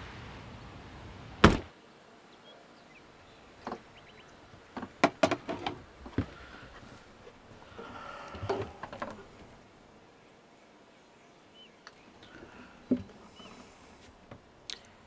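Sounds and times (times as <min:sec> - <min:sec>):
scraping rustle: 0:03.5 - 0:09.8
sharp clicks and knocks: 0:04.8 - 0:06.3.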